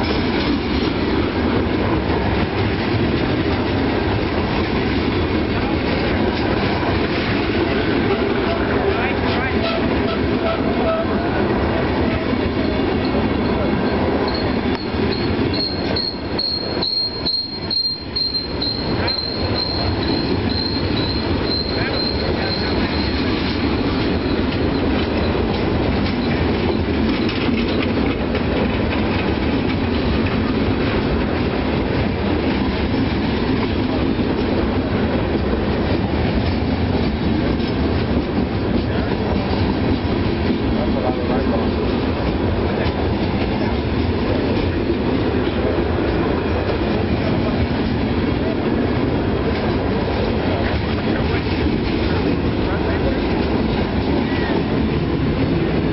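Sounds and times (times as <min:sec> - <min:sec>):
train wheels rumbling on rail: 0:00.0 - 0:55.9
high wheel squeal: 0:14.1 - 0:25.3.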